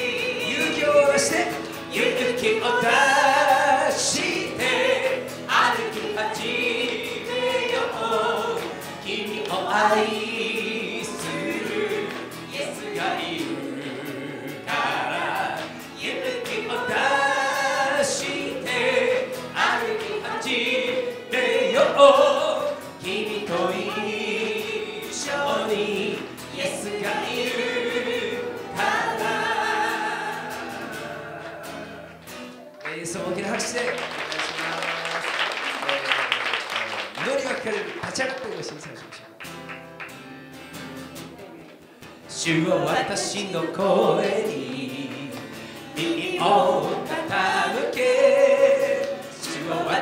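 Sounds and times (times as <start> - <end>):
woman singing worship song: 0.0 - 32.0, 42.3 - 50.0
acoustic guitar: 0.0 - 50.0.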